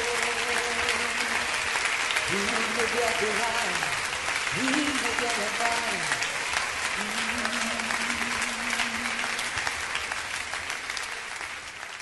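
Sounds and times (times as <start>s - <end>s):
crowd applauding: 0.0s - 12.0s
person calling a long note: 7.0s - 9.6s.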